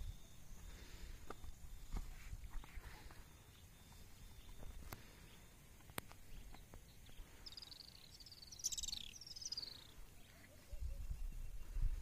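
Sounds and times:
bird chirping trill: 0:06.2 - 0:11.8.

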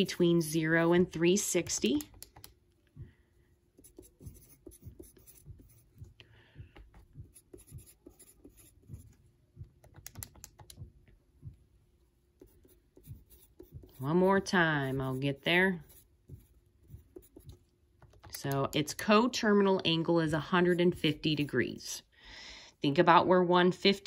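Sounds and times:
pencil scratching on paper: 0:03.7 - 0:06.1, 0:07.2 - 0:09.2, 0:12.4 - 0:17.6, 0:20.4 - 0:21.8.

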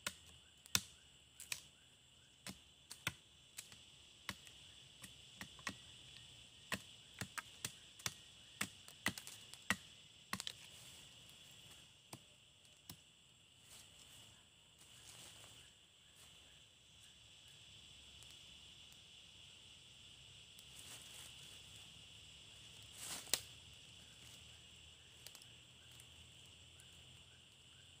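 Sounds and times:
machete chopping wooden stick: 0:00.0 - 0:01.6
high insect drone: 0:00.0 - 0:28.0.

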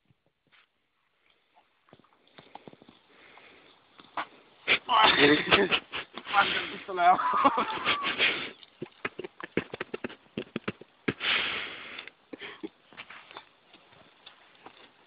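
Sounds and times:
heavy noisy breaths: 0:11.1 - 0:12.2.

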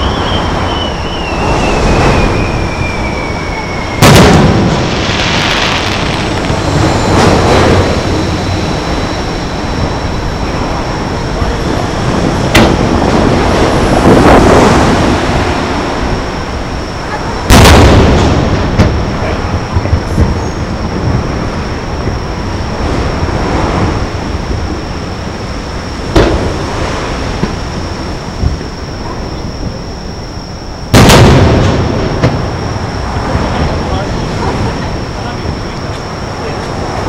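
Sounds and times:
firework bangs: 0:00.0 - 0:29.8, 0:30.9 - 0:37.0
firework whistle falling: 0:00.0 - 0:37.0
rolling echoes: 0:00.0 - 0:37.0
steady low noise: 0:00.0 - 0:37.0
sharp firework crack: 0:00.2 - 0:08.9, 0:12.5 - 0:14.9, 0:17.4 - 0:20.4, 0:30.9 - 0:32.6.

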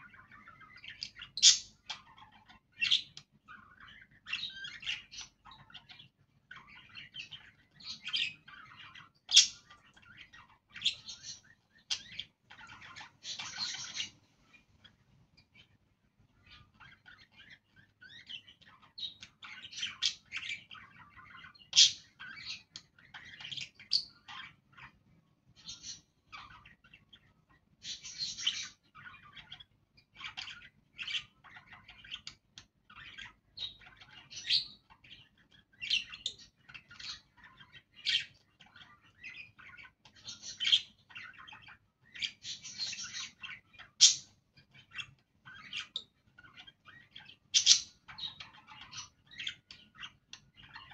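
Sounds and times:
budgerigars chirping and chattering: 0:00.0 - 0:50.9.

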